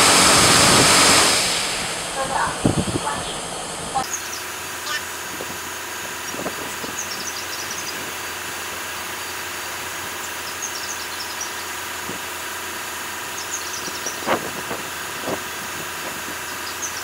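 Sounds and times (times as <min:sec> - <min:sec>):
car wash machine humming: 0:00.0 - 0:17.0.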